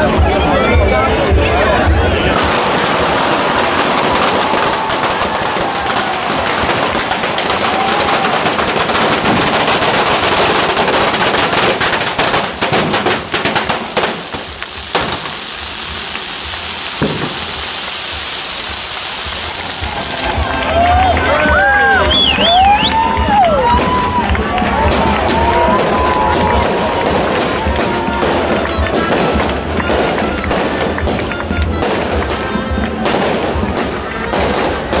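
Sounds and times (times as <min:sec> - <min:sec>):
string of firecrackers crackling: 0:01.2 - 0:35.0
scattered firecracker bangs: 0:02.3 - 0:21.2, 0:23.6 - 0:35.0.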